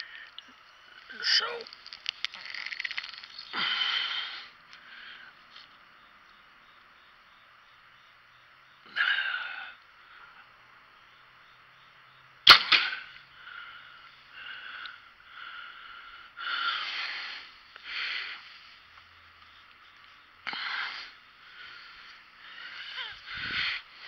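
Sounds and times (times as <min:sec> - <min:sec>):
soft bursts of noise: 0:00.0 - 0:08.6
sharp crack: 0:12.4 - 0:13.2.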